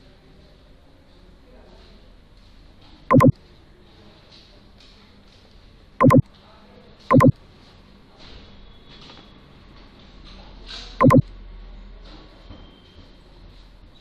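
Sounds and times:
short loud beeps: 3.1s - 3.3s, 6.0s - 6.2s, 7.1s - 7.3s, 11.0s - 11.2s.

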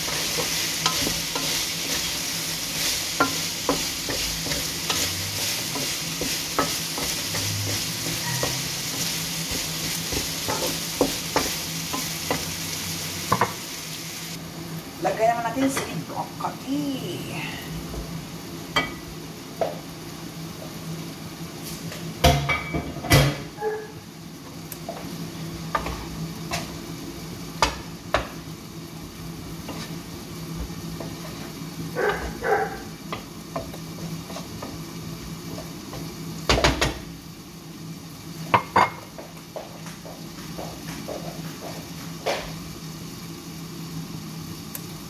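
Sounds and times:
wooden spatula stirring in a pan: 0.0s - 13.8s, 24.4s - 26.8s, 29.4s - 37.0s
utensils clinking on cookware: 3.2s - 12.5s.

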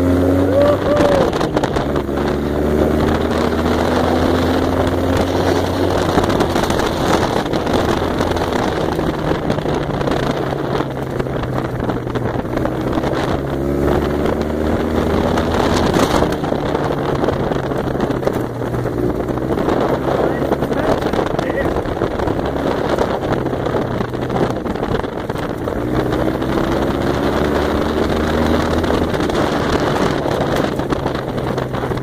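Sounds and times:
buggy engine running: 0.0s - 32.0s
wind noise on microphone: 0.0s - 32.0s.

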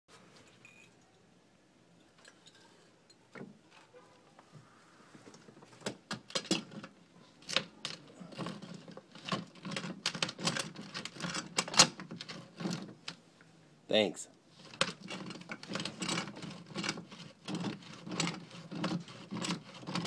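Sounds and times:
tool scraping on stucco wall: 5.3s - 13.1s, 14.5s - 20.0s.

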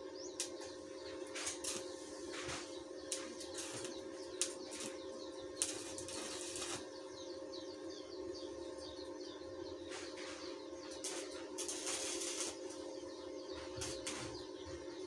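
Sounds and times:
welding arc crackling hiss: 0.0s - 0.6s, 1.2s - 6.9s, 10.9s - 12.9s, 13.6s - 14.4s
birds chirping: 0.0s - 15.0s.

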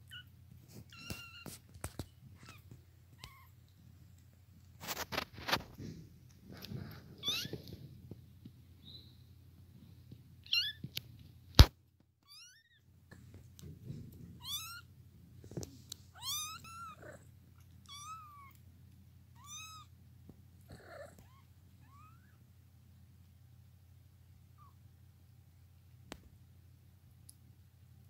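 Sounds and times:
kittens mewing: 16.1s - 18.6s, 20.7s - 22.3s
low steady purr: 20.4s - 21.6s.

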